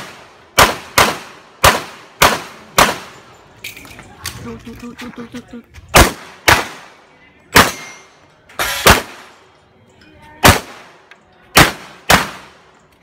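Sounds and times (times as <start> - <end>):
pistol shots: 0.0 - 3.2, 5.9 - 9.4, 10.4 - 12.7.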